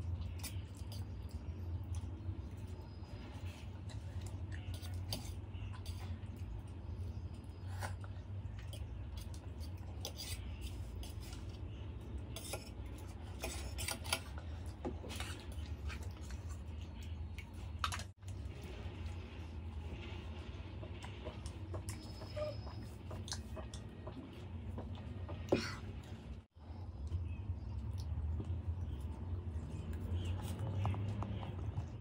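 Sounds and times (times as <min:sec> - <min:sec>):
chewing: 0:20.7 - 0:32.0.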